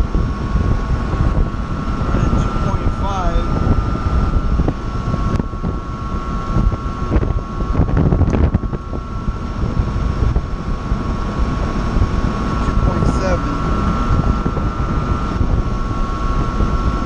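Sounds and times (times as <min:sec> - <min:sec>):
exhaust fan rumble and whine: 0:00.0 - 0:17.0
wind buffeting microphone: 0:00.0 - 0:17.0.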